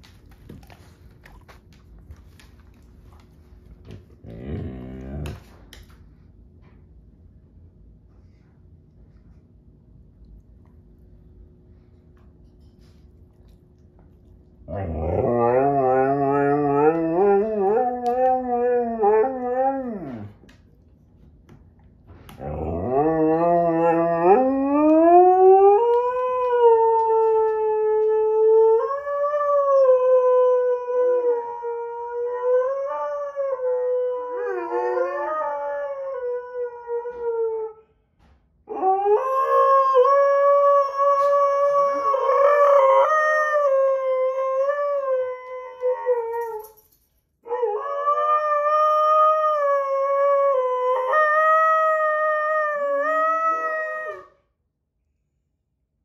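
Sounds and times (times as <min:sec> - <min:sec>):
dog howling: 0:14.7 - 0:20.3, 0:22.4 - 0:37.8, 0:47.5 - 0:54.4.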